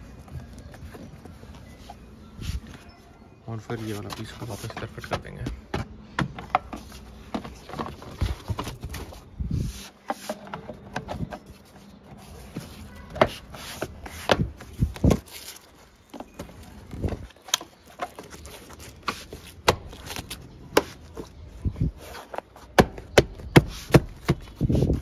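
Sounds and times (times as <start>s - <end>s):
rubber floor mat rustling: 6.3s - 25.0s.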